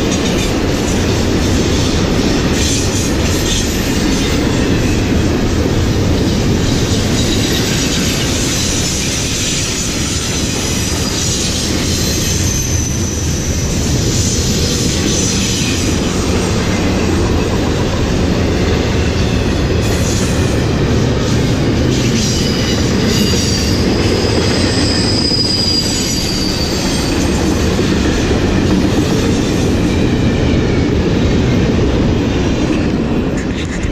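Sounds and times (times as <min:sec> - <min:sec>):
train wheels rumbling on rail: 0:00.0 - 0:33.9
high wheel squeals: 0:06.7 - 0:17.5, 0:22.0 - 0:27.9.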